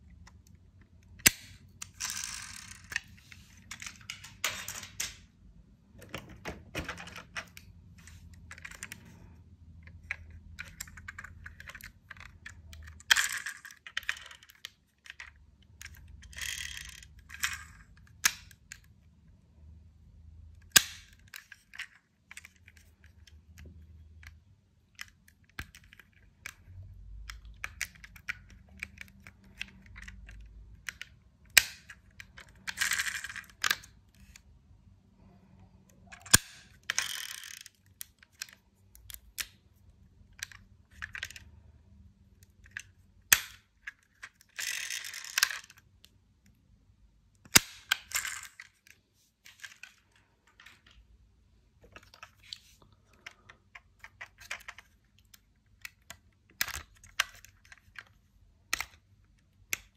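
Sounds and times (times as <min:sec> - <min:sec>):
toy cars clattering: 0:01.2 - 0:05.3, 0:09.9 - 0:18.6, 0:25.0 - 0:34.4, 0:36.0 - 0:39.6, 0:42.4 - 0:45.9, 0:47.4 - 0:51.0.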